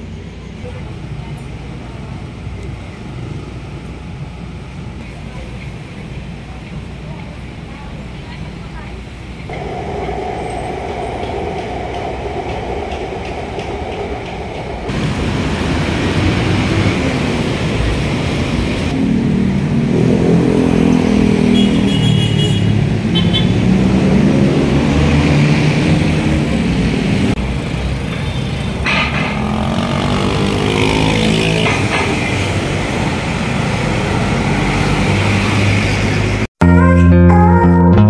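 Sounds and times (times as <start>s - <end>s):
motorcycle and car engines passing: 9.5s - 36.4s.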